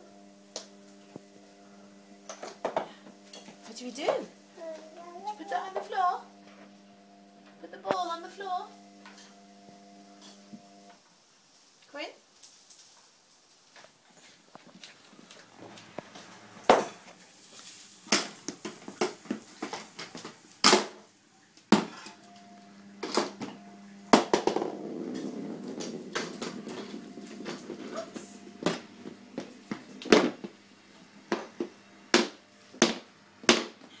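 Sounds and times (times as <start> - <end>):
low steady hum: 21.7 - 34.0.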